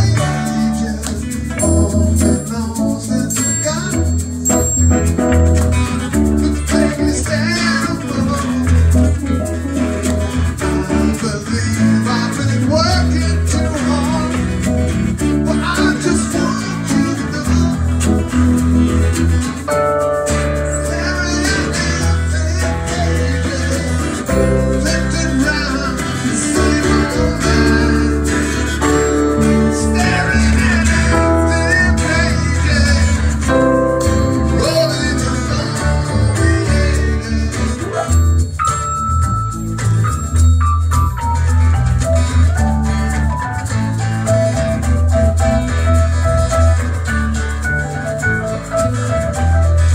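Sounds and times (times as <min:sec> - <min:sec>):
person singing: 0:00.0 - 0:04.6, 0:06.1 - 0:09.4, 0:10.6 - 0:14.5, 0:15.3 - 0:18.3, 0:20.6 - 0:38.2
deep bass line: 0:00.0 - 0:49.9
keyboard: 0:00.0 - 0:49.9
strummed acoustic guitar: 0:00.0 - 0:49.9.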